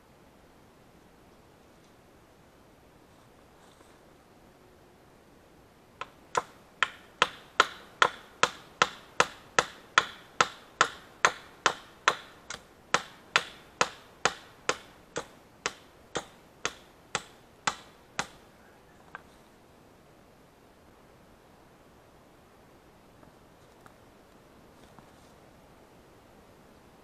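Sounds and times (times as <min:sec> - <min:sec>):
hand tool knocking on wood: 0:06.0 - 0:12.3, 0:13.0 - 0:18.4.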